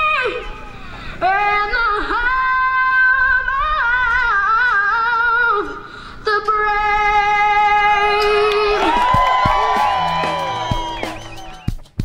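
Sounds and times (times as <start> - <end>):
woman singing: 1.2 - 9.0.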